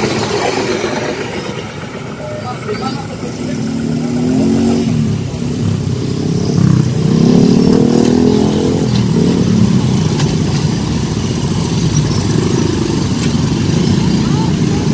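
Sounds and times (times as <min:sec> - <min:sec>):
motorbikes and scooters passing: 0:00.0 - 0:14.9.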